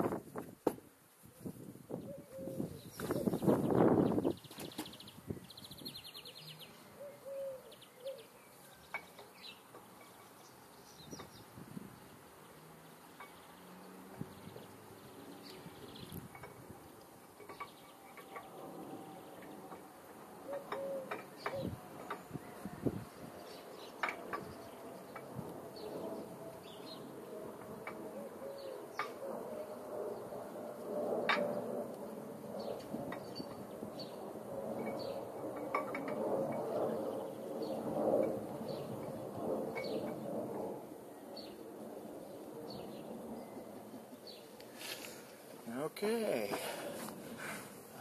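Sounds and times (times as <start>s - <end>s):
bird calls: 1.9s - 11.5s, 20.4s - 27.1s, 28.1s - 29.8s.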